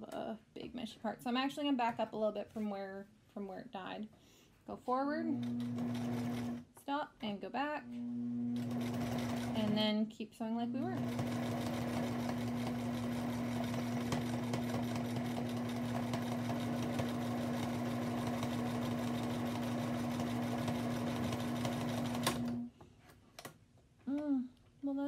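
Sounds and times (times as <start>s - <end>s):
sewing machine stitching: 5.4s - 6.6s, 8.5s - 9.9s, 10.8s - 22.7s.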